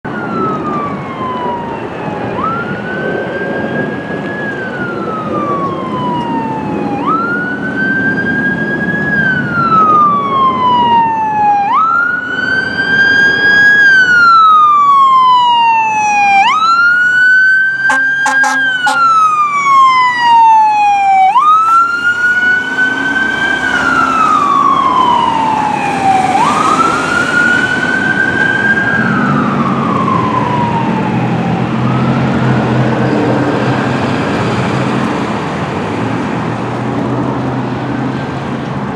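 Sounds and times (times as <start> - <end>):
fire engine siren wailing: 0.0 - 38.9
truck engine and road noise: 0.0 - 38.9
short sharp horn blasts: 17.9 - 19.1.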